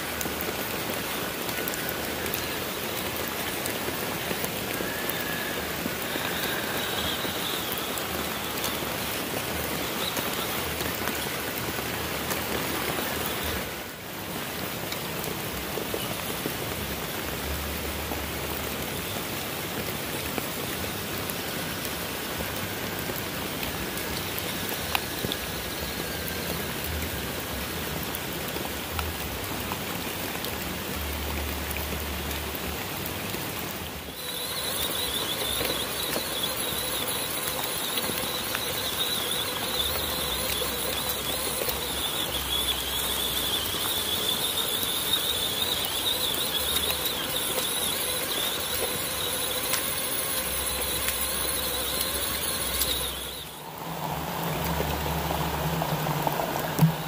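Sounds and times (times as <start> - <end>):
rc trucks driving: 0.2 - 13.8, 34.1 - 57.0
high electric motor whine: 0.2 - 14.0, 34.1 - 57.0.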